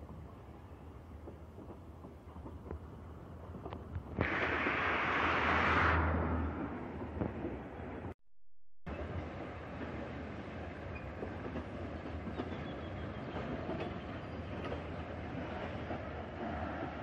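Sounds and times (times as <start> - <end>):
freight train wagons rumbling: 8.9 - 17.0.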